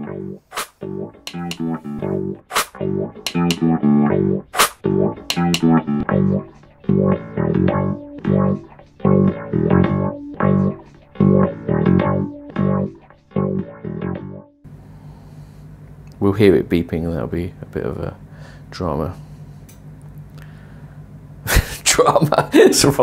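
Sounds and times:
plucked guitar tune over bass: 0.0 - 14.6.

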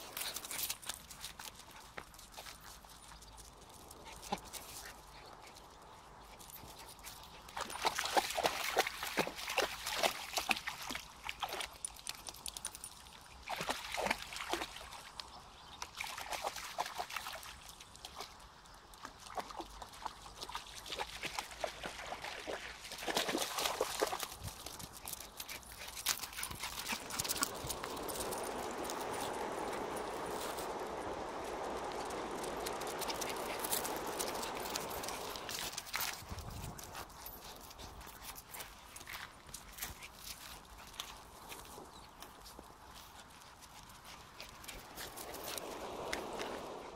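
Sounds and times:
paws clicking on stone: 0.0 - 8.5, 11.4 - 13.2, 23.1 - 46.8
dogs splashing in shallow water: 0.0 - 46.9.

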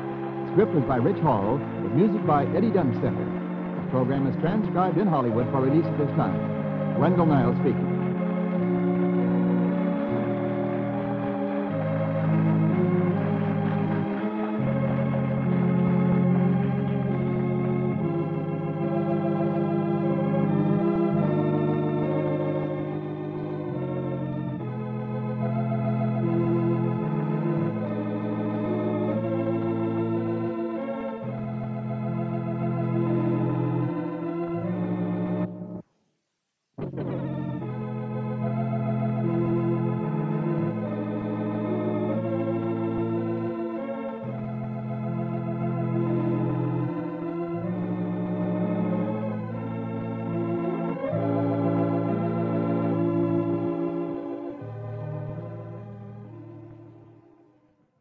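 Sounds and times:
organ playing slow chords: 0.0 - 35.9, 36.8 - 58.0.

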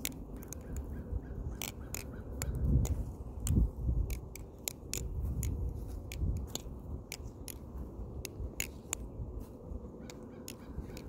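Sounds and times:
butterfly knife clacking: 0.0 - 9.2, 10.0 - 11.0.

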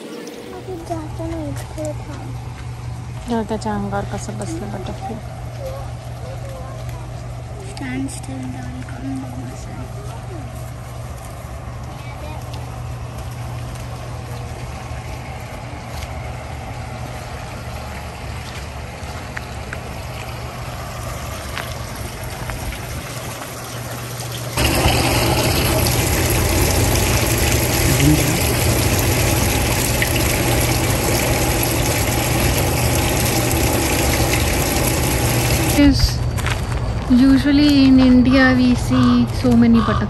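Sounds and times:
low pump hum: 0.0 - 40.0
water trickling: 11.9 - 36.0.

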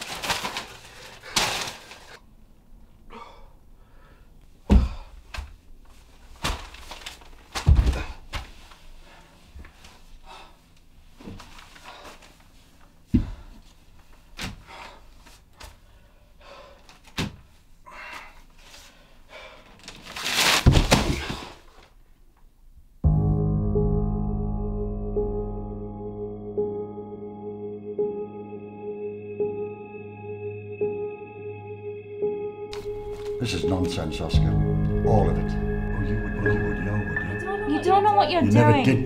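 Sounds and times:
paper rustling: 0.0 - 2.2, 6.0 - 7.8, 19.8 - 21.9
person falling onto wooden floor: 6.4 - 8.6, 20.5 - 21.6.

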